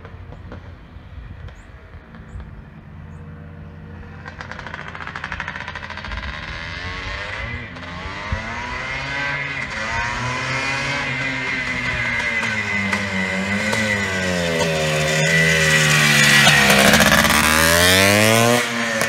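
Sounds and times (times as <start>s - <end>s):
motocross engine revving: 4.0s - 19.0s.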